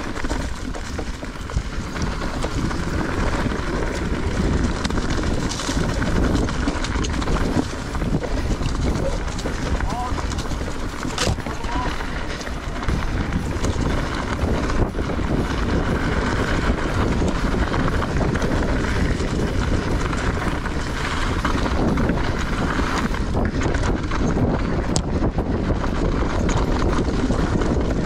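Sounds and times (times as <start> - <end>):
bike rattling: 0.0 - 28.0
tyres rolling on dirt: 0.0 - 28.0
wind on microphone: 0.0 - 28.0.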